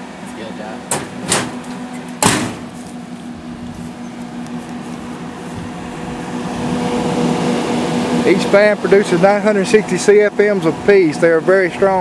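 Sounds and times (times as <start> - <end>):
roof vent fans humming: 0.0 - 12.0
sharp knocks: 0.9 - 2.8.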